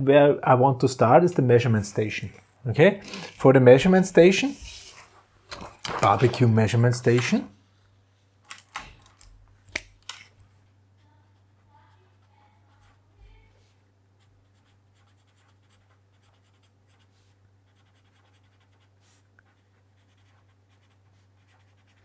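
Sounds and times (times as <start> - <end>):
pen scratching on paper: 11.3 - 13.1, 14.2 - 22.0.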